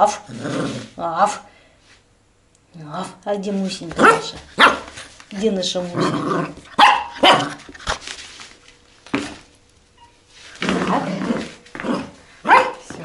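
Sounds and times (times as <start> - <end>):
puppy barking: 4.0 - 5.0, 6.7 - 7.6, 11.9 - 13.0.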